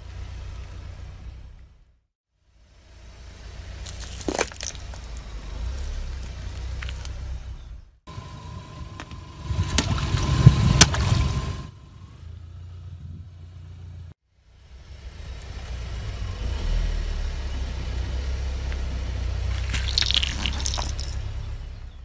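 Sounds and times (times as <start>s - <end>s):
car engine running: 0.0s - 22.0s
tyre crushing plastic container: 3.9s - 5.0s.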